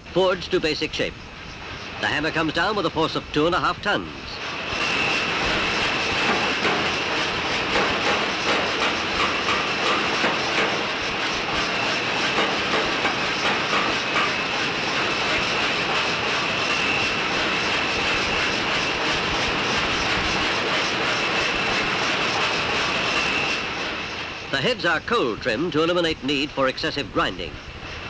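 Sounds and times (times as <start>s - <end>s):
roaring factory machinery: 0.0s - 28.0s.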